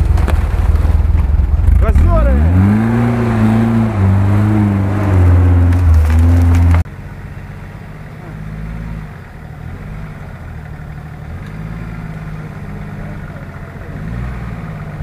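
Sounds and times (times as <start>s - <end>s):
engine idling: 0.0s - 15.0s
off-road vehicle engine straining: 0.0s - 15.0s.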